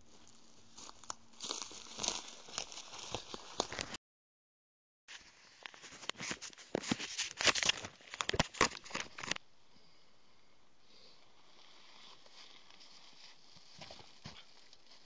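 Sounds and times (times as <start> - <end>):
dry leaves and twigs crackling: 0.0 - 4.0, 11.5 - 15.0
faint outdoor hiss: 9.4 - 15.0.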